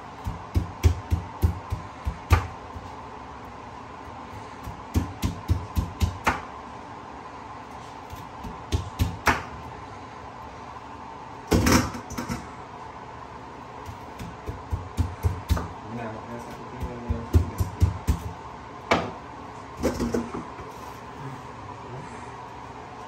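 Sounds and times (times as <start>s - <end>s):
faint steady hum: 0.0s - 23.0s
knife chopping on wooden board: 0.2s - 2.6s, 4.6s - 6.5s, 8.1s - 9.5s, 13.9s - 15.7s, 16.8s - 18.3s.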